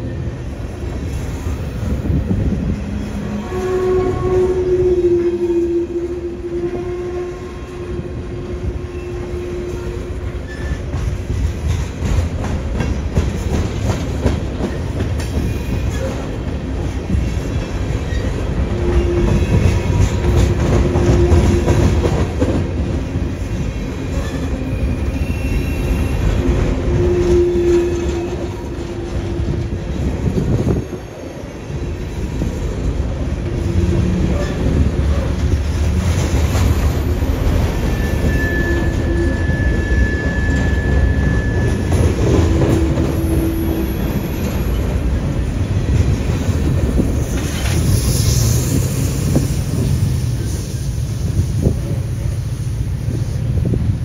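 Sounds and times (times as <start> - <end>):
freight train rumbling past: 0.0 - 54.0
wheels clacking over rail joints: 10.3 - 25.1.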